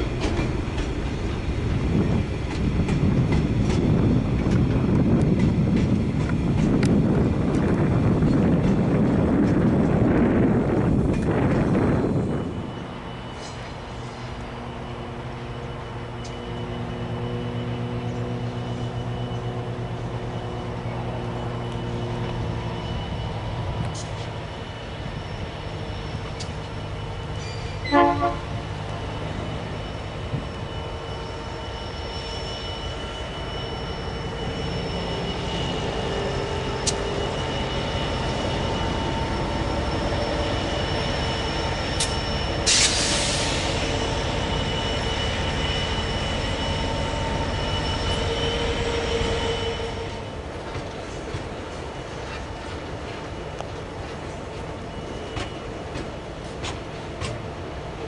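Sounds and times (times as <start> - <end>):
diesel locomotive engine running: 0.0 - 58.0
squealing train wheels: 0.0 - 58.0
brief hiss: 42.7 - 43.9.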